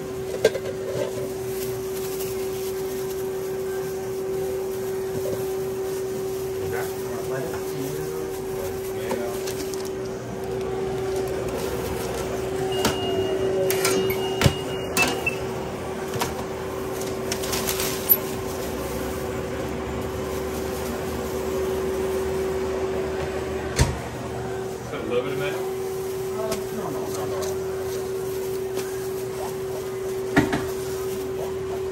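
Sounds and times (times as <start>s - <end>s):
microwave hum: 0.0s - 31.9s
thin high tone: 12.3s - 15.5s.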